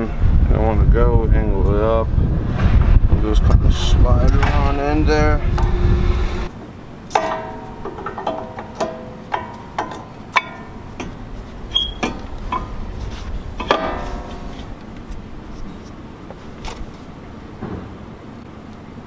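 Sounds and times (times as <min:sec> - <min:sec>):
brake pads clinking on metal: 0:07.1 - 0:15.1.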